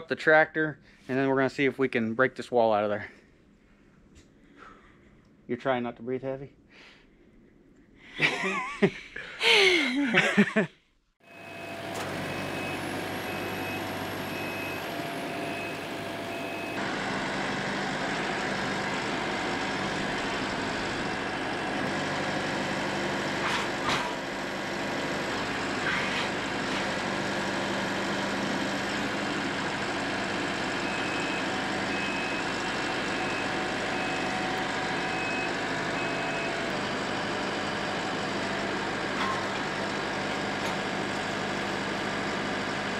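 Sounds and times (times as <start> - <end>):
diesel tractor engine running: 11.2 - 42.9.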